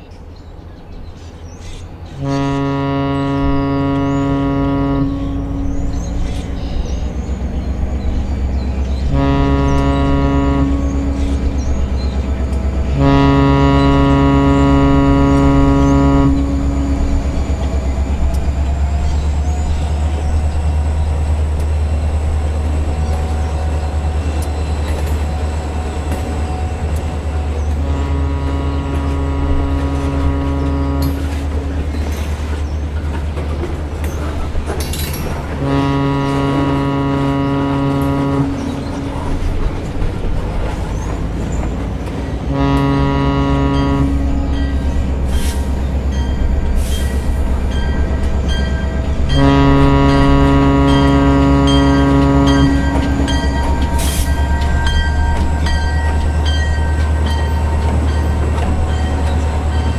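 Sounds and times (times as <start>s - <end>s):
diesel engine rumble: 1.6s - 59.9s
diesel locomotive horn blasts: 1.6s - 59.9s.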